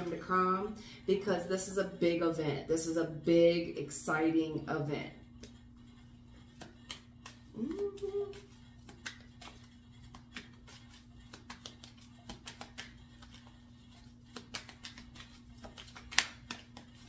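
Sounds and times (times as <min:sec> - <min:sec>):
low steady hum: 0:00.0 - 0:17.0
cards clicking and tapping: 0:06.5 - 0:17.0
card snap: 0:14.3 - 0:16.8.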